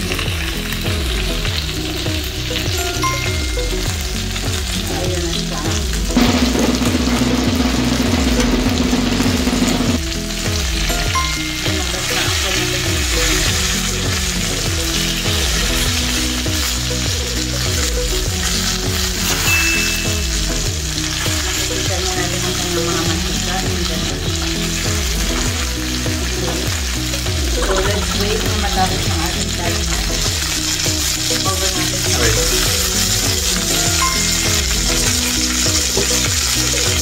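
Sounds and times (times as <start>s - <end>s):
chicken sizzling in skillet: 0.0s - 37.0s.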